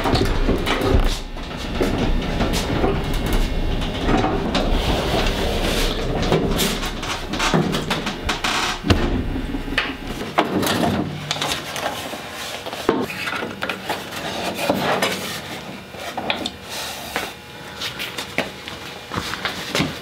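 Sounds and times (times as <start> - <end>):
scraping and shuffling: 0.0 - 10.2.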